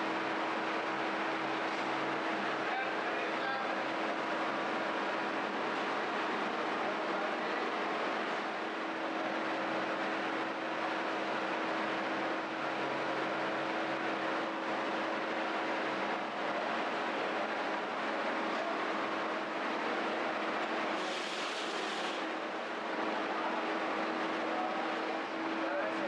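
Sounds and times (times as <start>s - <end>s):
machine rushing hiss: 20.9s - 22.3s.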